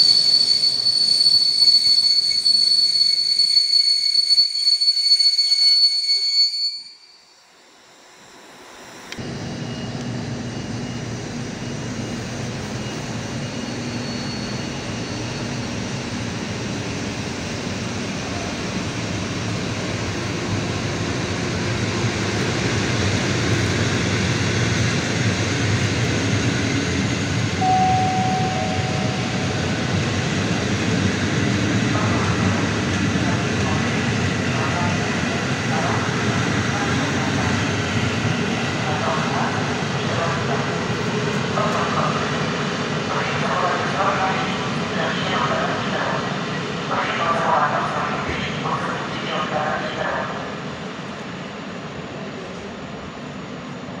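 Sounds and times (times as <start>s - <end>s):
train wheel squeal: 0.0s - 16.6s
train rumbling past on rails: 9.2s - 54.0s.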